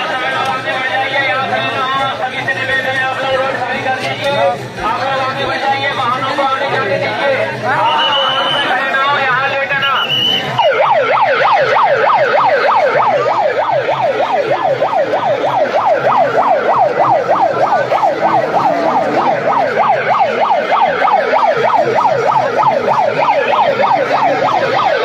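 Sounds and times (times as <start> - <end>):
electronic siren yelping: 9.8 - 25.0.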